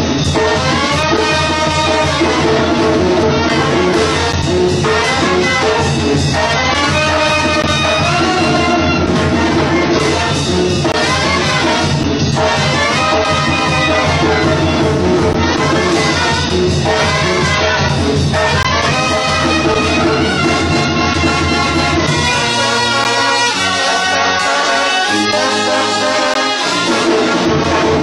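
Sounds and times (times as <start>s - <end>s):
brass band playing: 0.0s - 28.0s.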